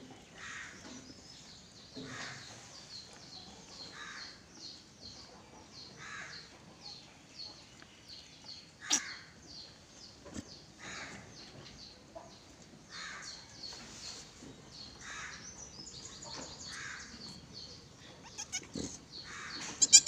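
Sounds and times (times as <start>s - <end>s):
harsh animal calls: 18.2s - 20.0s.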